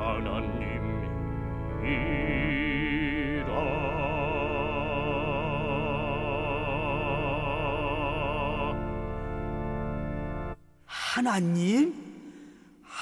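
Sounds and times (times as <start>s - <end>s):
sustained accompaniment chord: 0.0s - 12.6s
person singing with vibrato: 10.9s - 13.0s.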